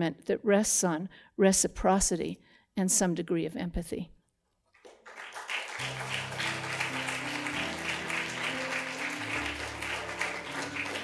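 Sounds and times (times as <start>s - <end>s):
audience applauding: 4.8s - 11.0s
instrumental music: 5.7s - 11.0s.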